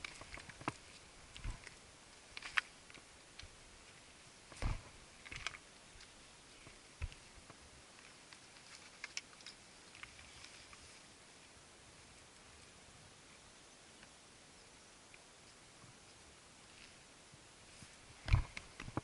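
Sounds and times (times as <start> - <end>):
faint steady hiss: 0.0 - 19.0.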